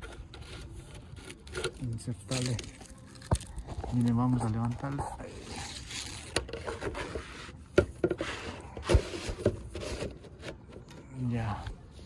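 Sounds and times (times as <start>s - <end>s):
scraping and rubbing on roof shingles: 3.6s - 10.7s.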